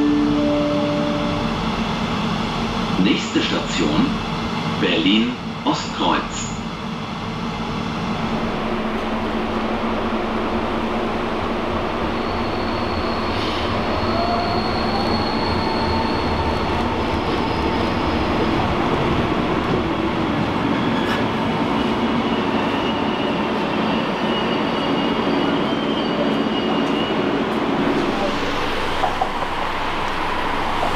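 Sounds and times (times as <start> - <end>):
train whine rising in pitch: 0.0 - 2.9, 7.3 - 30.9
electric train rumbling on rails: 0.0 - 30.9
faint wheel squeals: 12.1 - 18.0, 22.2 - 27.3.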